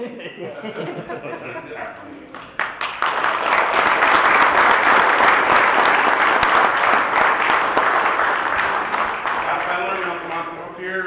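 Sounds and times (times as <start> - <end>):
audience applauding: 2.3 - 10.6.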